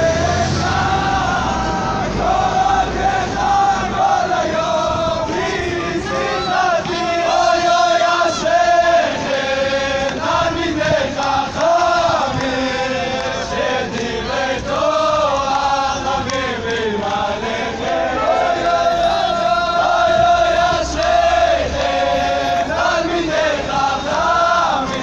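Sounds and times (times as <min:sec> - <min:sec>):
men chanting together: 0:00.0 - 0:25.0.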